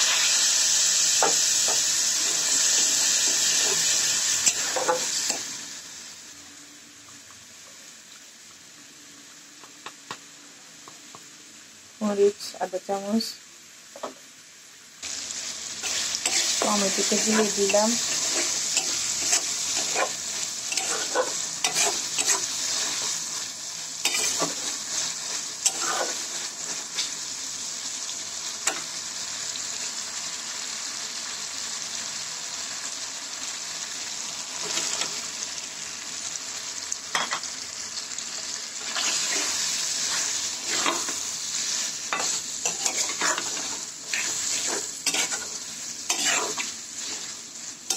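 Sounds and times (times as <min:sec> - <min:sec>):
food sizzling in hot oil: 0:00.0 - 0:47.9
metal spatula scraping a pan: 0:03.2 - 0:05.4, 0:15.8 - 0:23.2, 0:24.0 - 0:27.2, 0:38.8 - 0:47.3.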